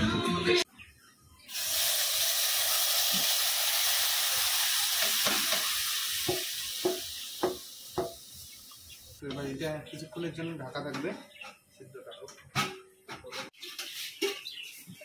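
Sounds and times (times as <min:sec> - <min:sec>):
chicken sizzling in a wok: 0:01.5 - 0:09.2.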